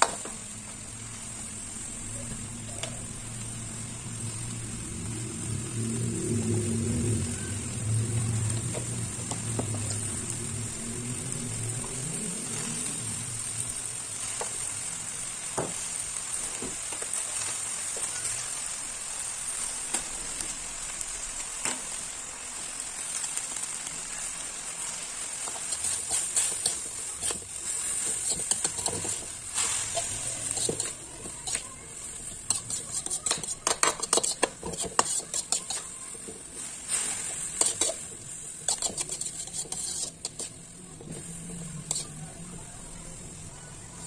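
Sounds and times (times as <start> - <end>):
greens sizzling in a wok: 0.0 - 44.0
metal spatula scraping wok: 24.8 - 42.5.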